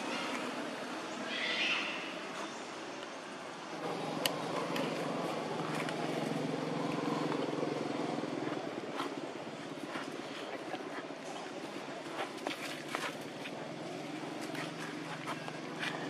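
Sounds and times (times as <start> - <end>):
motor vehicle engine humming: 3.5 - 16.0.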